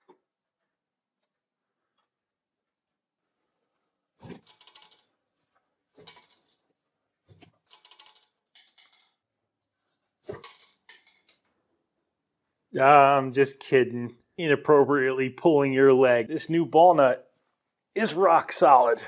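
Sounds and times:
ball bearings clattering on metal: 0:04.3 - 0:05.2, 0:06.0 - 0:06.6, 0:07.6 - 0:09.2, 0:10.3 - 0:11.4.

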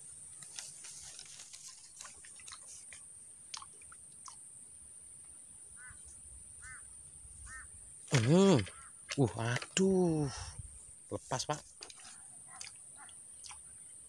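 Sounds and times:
bird calls: 0:05.6 - 0:09.2.

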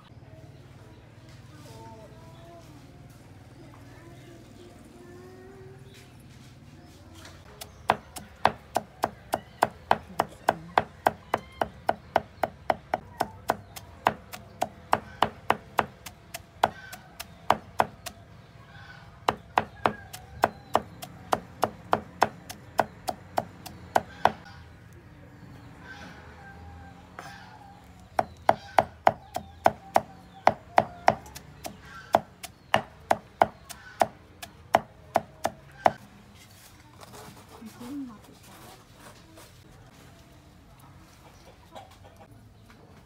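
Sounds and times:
cleaver chopping on wooden board: 0:07.6 - 0:18.2, 0:19.2 - 0:24.4, 0:28.2 - 0:36.0.

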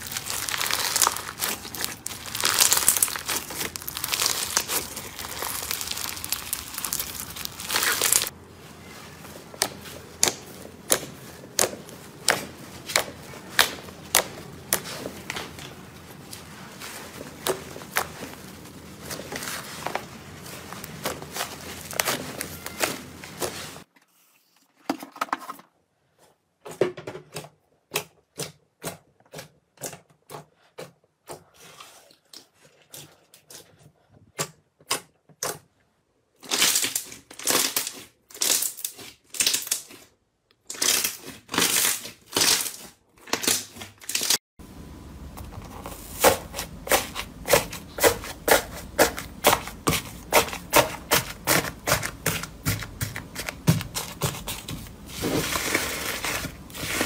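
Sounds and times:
slime squeezed by hand: 0:00.0 - 0:08.3.

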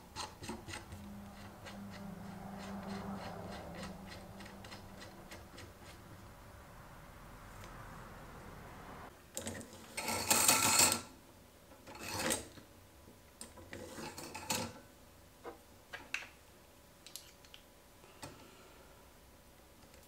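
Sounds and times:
metal scraping: 0:00.0 - 0:06.6.

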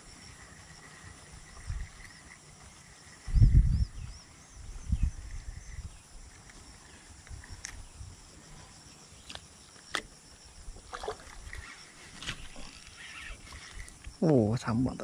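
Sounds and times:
small high chirps: 0:11.3 - 0:14.3.

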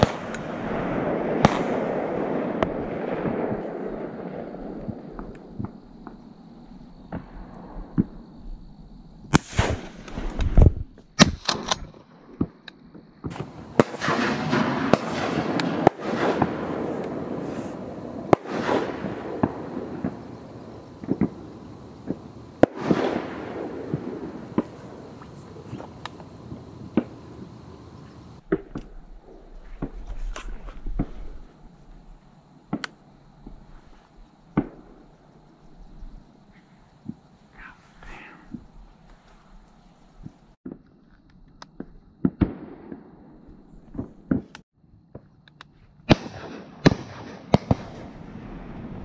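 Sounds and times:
shotgun shots: 0:00.0 - 0:03.7, 0:09.3 - 0:10.2, 0:13.3 - 0:17.4, 0:18.3 - 0:20.3, 0:22.0 - 0:25.0, 0:46.1 - 0:48.1.

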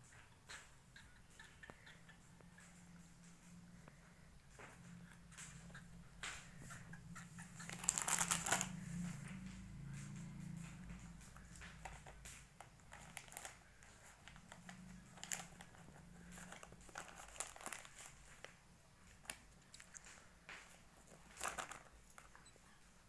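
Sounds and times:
plastic snack packet crinkling: 0:07.6 - 0:08.8, 0:11.8 - 0:22.4.

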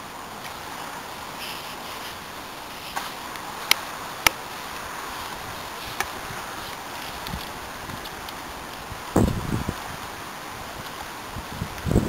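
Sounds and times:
wind hiss: 0:00.0 - 0:12.0.

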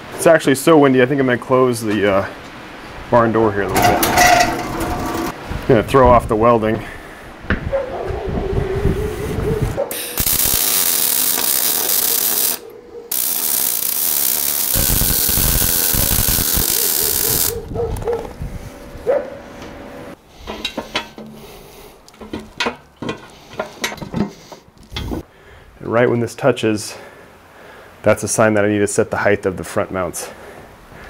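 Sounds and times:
metal knocks and clinks: 0:03.7 - 0:05.4, 0:22.2 - 0:24.3
arc welding crackling hiss: 0:09.9 - 0:17.7.

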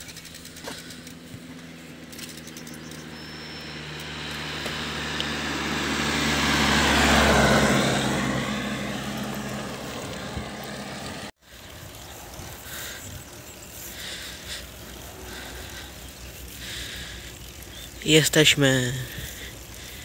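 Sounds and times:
car driving past: 0:02.9 - 0:11.3.

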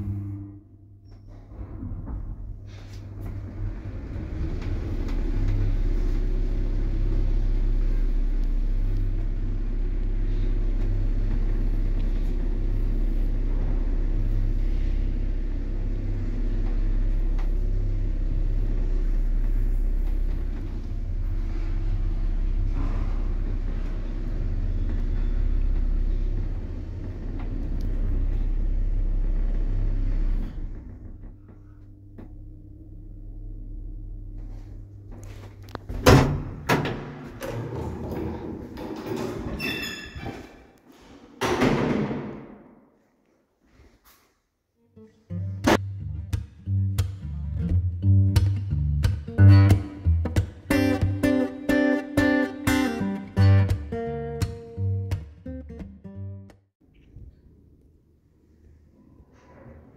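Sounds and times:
lift humming and rumbling: 0:00.0 - 0:41.2.

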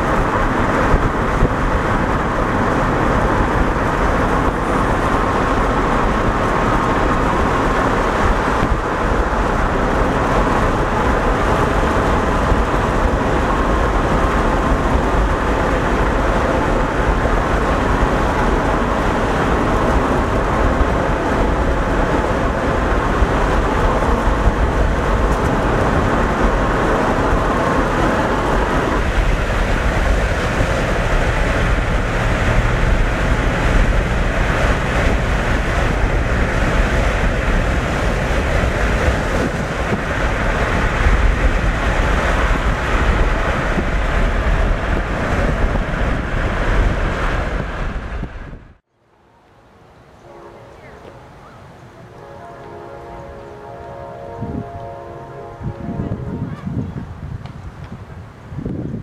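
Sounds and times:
car road and wind noise: 0:00.0 - 0:59.0
freight train rumbling: 0:00.0 - 0:59.0.

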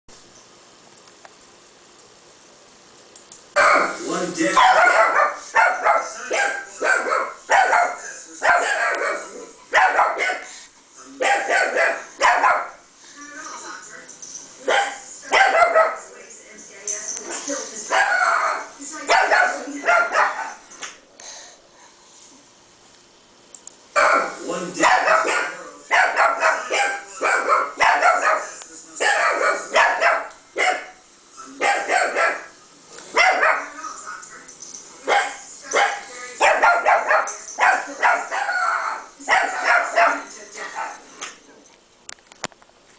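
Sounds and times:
chihuahua barking: 0:03.6 - 0:10.5, 0:11.2 - 0:12.8, 0:14.6 - 0:16.0, 0:17.9 - 0:20.6, 0:24.0 - 0:33.8, 0:35.0 - 0:41.1
dog barks from computer speakers: 0:03.6 - 0:10.5, 0:11.2 - 0:12.8, 0:14.6 - 0:16.1, 0:17.9 - 0:20.6, 0:24.0 - 0:31.0, 0:31.6 - 0:33.8, 0:35.0 - 0:41.0.

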